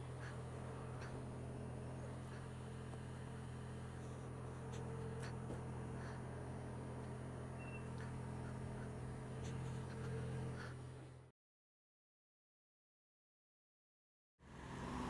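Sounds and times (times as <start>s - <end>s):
low engine-like hum: 0.0s - 11.3s, 14.4s - 15.0s.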